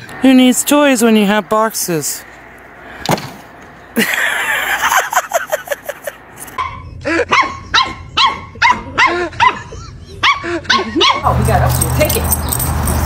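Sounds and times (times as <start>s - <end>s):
dog yipping: 6.6s - 11.4s
puppy barking in high yaps: 6.6s - 11.4s.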